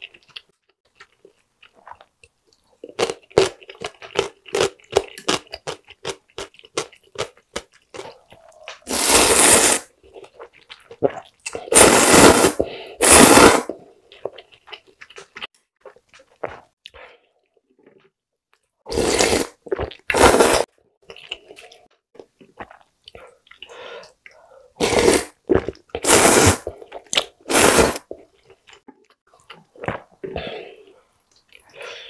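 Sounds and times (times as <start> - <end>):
soft chewing: 0.0 - 8.9, 10.0 - 11.7, 14.1 - 18.7, 21.0 - 24.8, 28.1 - 31.8
noodle slurping: 8.0 - 13.8, 18.9 - 20.7, 22.6 - 28.2.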